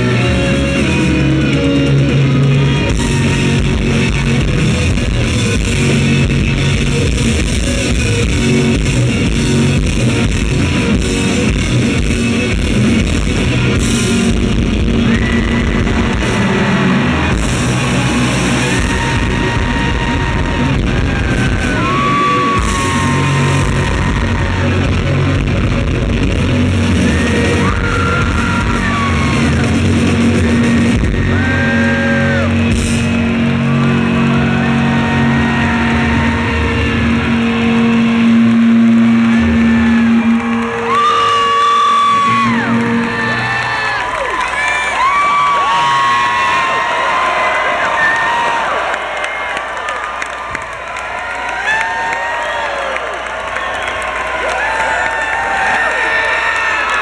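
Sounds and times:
rock band playing live: 0:00.0 - 0:48.0
distorted electric guitar lead: 0:00.0 - 0:48.5.

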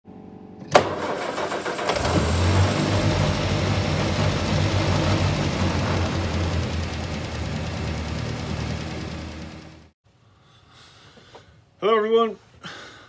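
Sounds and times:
vehicle engine starting and running: 0:00.6 - 0:10.0.

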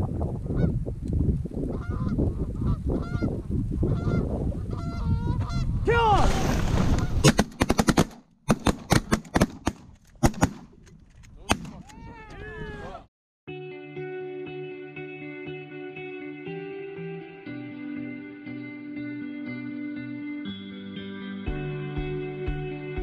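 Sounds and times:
geese honking: 0:03.9 - 0:05.7
shotgun blasts: 0:06.3 - 0:10.8.

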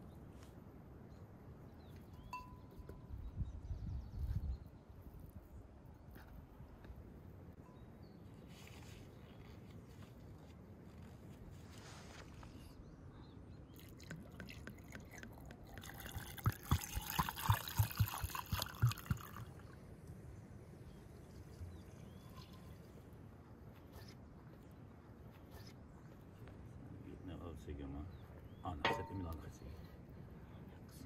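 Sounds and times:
liquid trickling into clay pot: 0:13.7 - 0:19.7.

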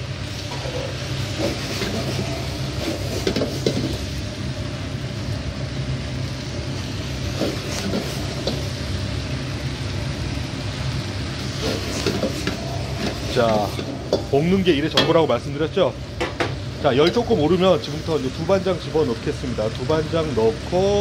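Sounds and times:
exhaust fan roar: 0:00.0 - 0:21.0
onions sizzling in a wok: 0:00.0 - 0:21.0
metal ladle scraping a wok: 0:00.4 - 0:04.0, 0:11.4 - 0:14.4.

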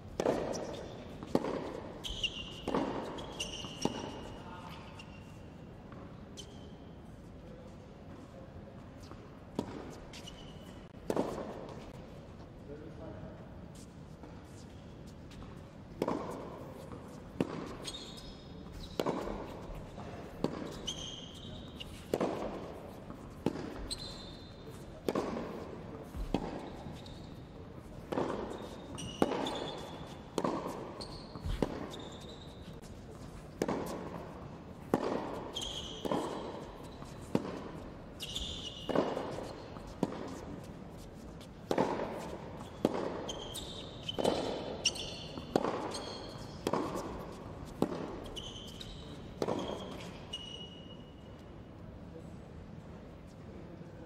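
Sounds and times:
tennis racket striking ball: 0:00.1 - 0:04.4, 0:11.0 - 0:12.0, 0:16.0 - 0:48.8
tennis ball bouncing: 0:00.1 - 0:05.0, 0:09.0 - 0:12.0, 0:15.3 - 0:50.2
sneaker squeaks on hard court: 0:00.2 - 0:05.4, 0:16.1 - 0:32.8, 0:34.8 - 0:40.4, 0:41.8 - 0:51.1.

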